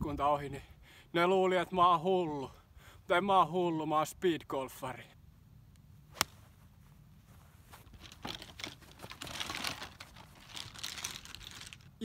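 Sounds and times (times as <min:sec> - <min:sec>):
golf club striking ball: 0:06.1 - 0:06.4
golf bag rustling and knocking: 0:07.4 - 0:11.8.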